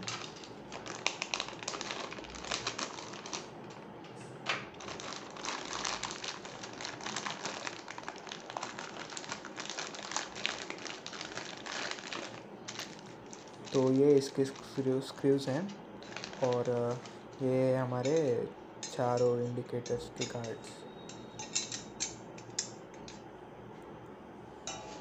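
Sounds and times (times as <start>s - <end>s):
plastic packaging crinkling: 0.0s - 17.4s.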